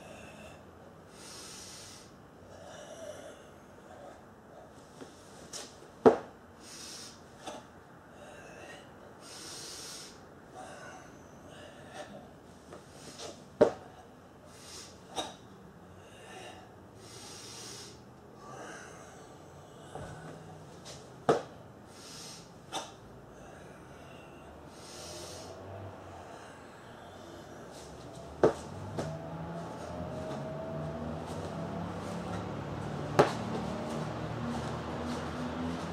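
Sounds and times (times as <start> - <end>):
long hissing breaths: 0.0 - 4.2, 6.6 - 13.4, 14.4 - 15.2, 15.9 - 20.7, 21.8 - 28.0
short sharp loud exhales: 21.9 - 23.0.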